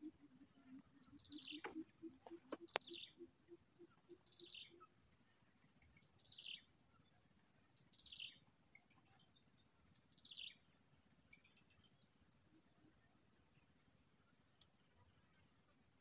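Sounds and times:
faint bird calls: 0.0s - 5.0s.

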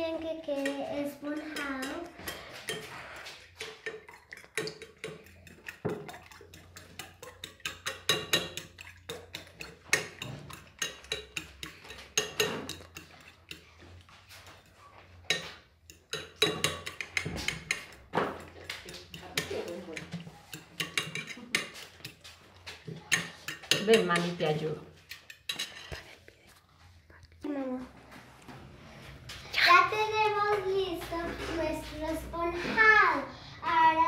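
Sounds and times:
fork clinking against bowl: 0.6s - 13.7s, 15.3s - 22.3s, 23.0s - 24.4s, 25.0s - 26.0s.

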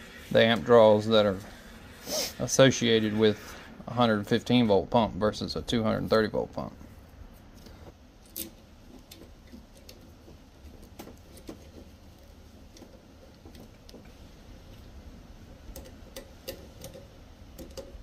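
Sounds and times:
wire clicks and taps: 15.6s - 18.0s.

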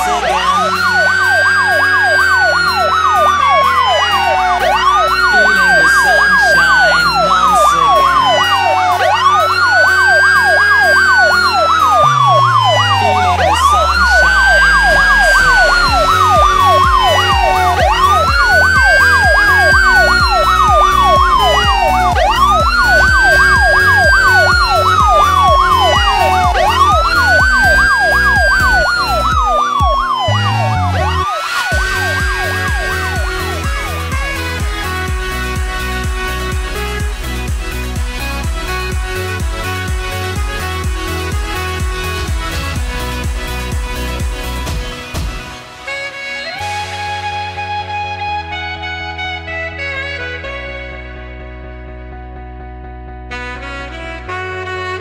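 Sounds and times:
siren-like synth sweep: 0.0s - 37.3s
pulsing bass: 0.0s - 45.8s, 46.6s - 55.0s
electronic dance music: 0.0s - 47.5s.

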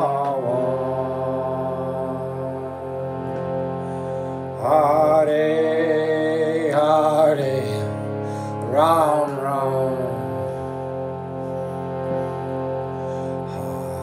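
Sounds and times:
man singing a chant: 0.0s - 3.1s, 4.6s - 10.8s, 13.5s - 14.0s
sustained instrumental drone: 0.0s - 14.0s.

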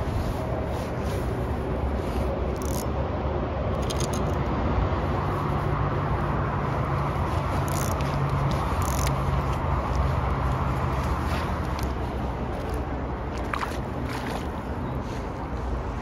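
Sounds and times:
traffic rumble on a bridge: 0.0s - 16.0s
light clicks and scrapes: 0.1s - 2.9s, 7.2s - 12.9s.

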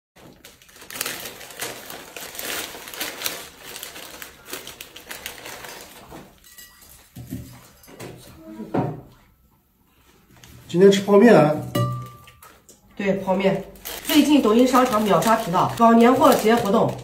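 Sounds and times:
plastic packets crinkling: 0.2s - 6.4s, 13.5s - 17.0s.

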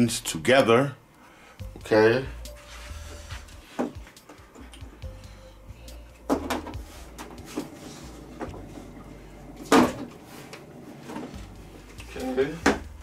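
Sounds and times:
tv parts knocking and clattering: 6.2s - 7.7s.

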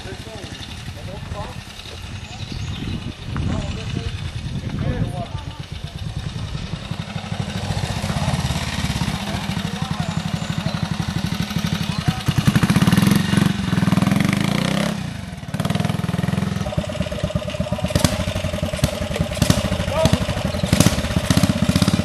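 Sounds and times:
motorcycle engine at low revs: 0.0s - 22.0s.

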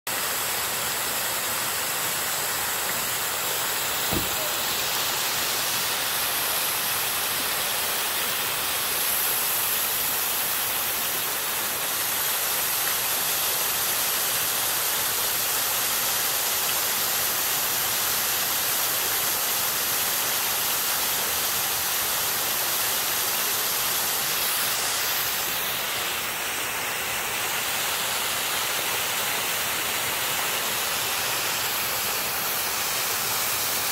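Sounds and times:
fountain water splashing: 0.1s - 33.9s
low thump: 4.1s - 4.6s.

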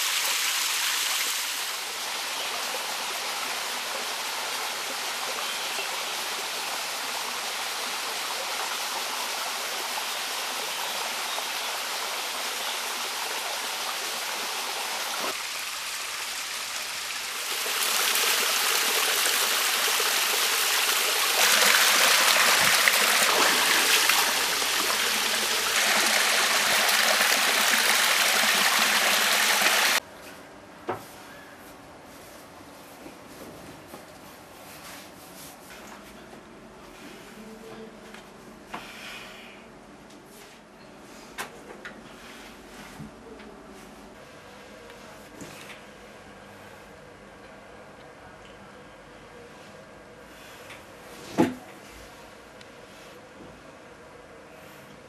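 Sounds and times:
stream cascading over rocks: 11.8s - 30.0s.

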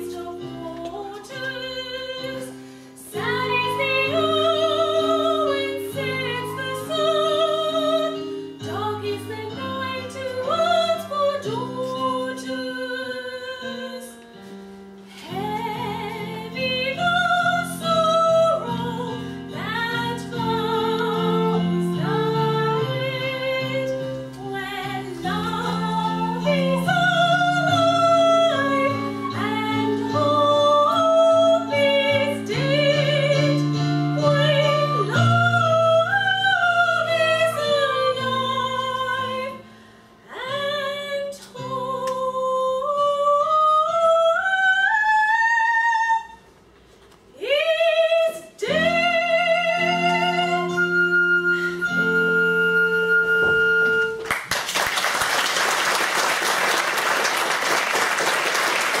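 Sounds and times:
woman singing with vibrato: 0.0s - 14.2s, 15.1s - 39.7s, 40.3s - 46.5s, 47.3s - 54.4s
instrumental accompaniment: 0.0s - 40.3s, 48.4s - 54.5s
audience applauding: 54.2s - 59.0s.

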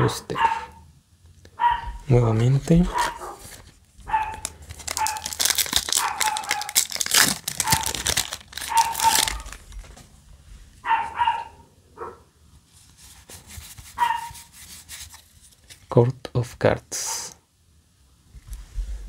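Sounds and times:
foil wrapper crinkling and tearing: 2.6s - 10.0s
high-pitched yelps: 8.6s - 9.5s.

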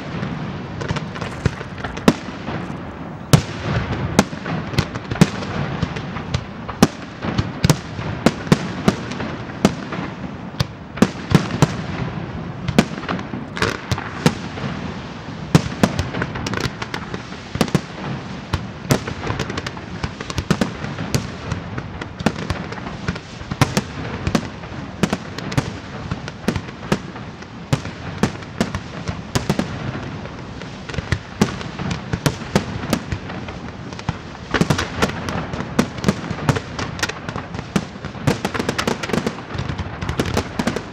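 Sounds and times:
fireworks shells bursting: 0.0s - 7.4s, 36.7s - 40.9s
hiss and crackle of fireworks: 0.0s - 40.9s.

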